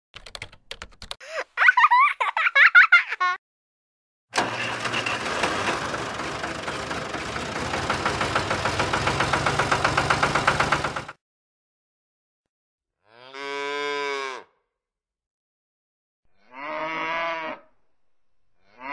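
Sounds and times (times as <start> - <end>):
tractor engine running: 4.4 - 11.2
cow mooing: 13.0 - 14.6, 16.4 - 17.7, 18.6 - 18.9.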